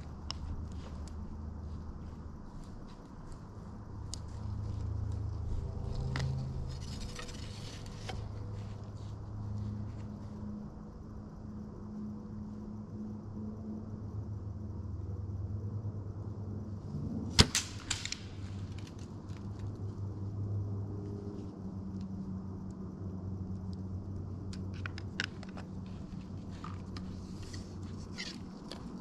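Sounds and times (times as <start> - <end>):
bow string snapping: 17.4 - 19.0.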